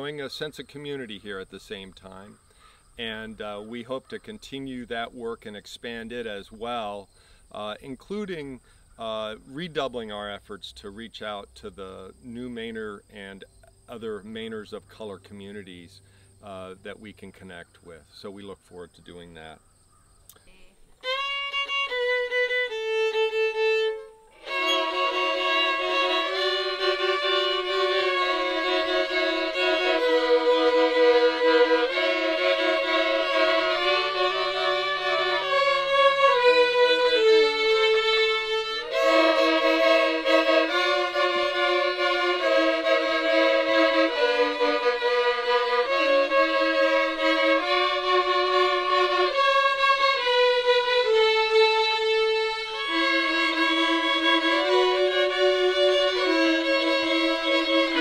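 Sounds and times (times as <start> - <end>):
children playing violins: 21.0 - 58.0.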